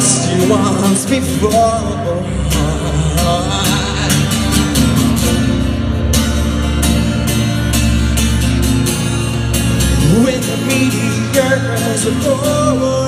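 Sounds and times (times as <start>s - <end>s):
person singing: 0.0s - 5.5s
acoustic guitar strumming: 0.0s - 13.0s
plucked double bass: 0.0s - 13.0s.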